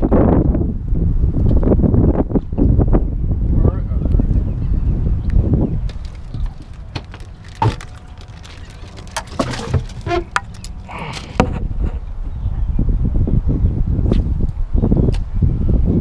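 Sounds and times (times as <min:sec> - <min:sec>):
wind buffeting microphone: 0:00.0 - 0:16.0
knocks and rattles on boat deck: 0:06.4 - 0:10.6.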